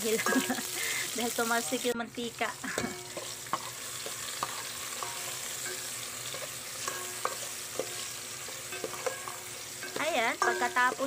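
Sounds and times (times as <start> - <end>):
food sizzling in hot oil: 0.0 - 11.0
metal spoon scraping pot: 2.7 - 11.0.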